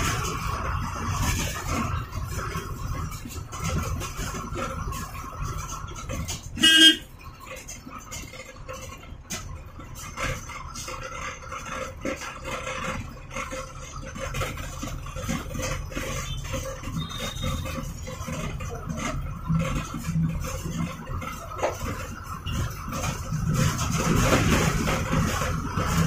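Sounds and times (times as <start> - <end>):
bus diesel engine running: 0.0 - 26.0
bus horn blast: 6.6 - 7.1.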